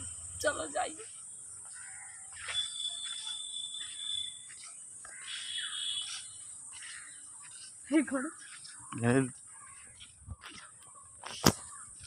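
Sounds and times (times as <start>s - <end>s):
high-pitched insect drone: 0.0s - 9.3s
birds chirping: 0.0s - 12.0s.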